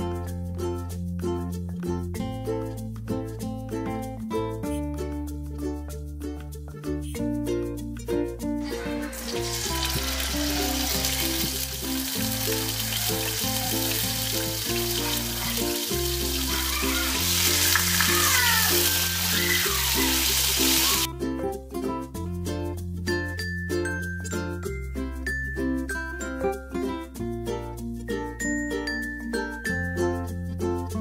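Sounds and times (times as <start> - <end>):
meat sizzling in hot oil: 8.7 - 21.1.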